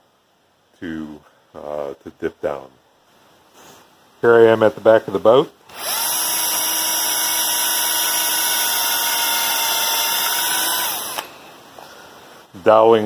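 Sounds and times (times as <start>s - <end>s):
cordless drill boring into wood: 5.7s - 11.3s.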